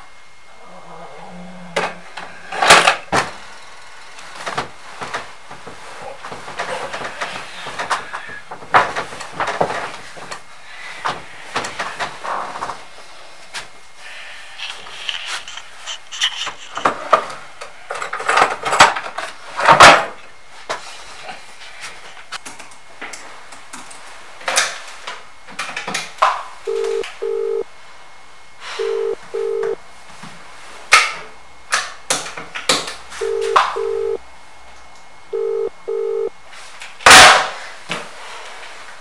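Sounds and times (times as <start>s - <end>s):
telephone ringback tone: 26.7s - 27.6s, 28.7s - 29.8s, 33.2s - 34.2s, 35.3s - 36.3s.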